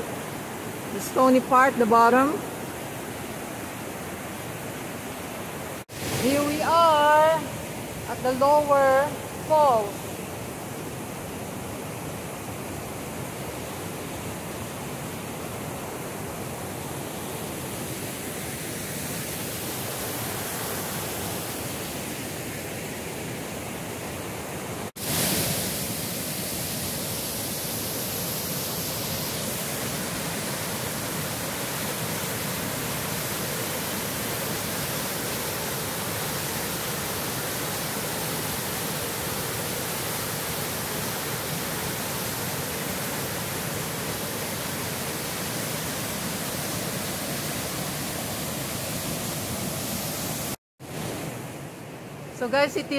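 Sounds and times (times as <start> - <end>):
waterfall rushing: 5.8 - 10.1, 24.9 - 51.4.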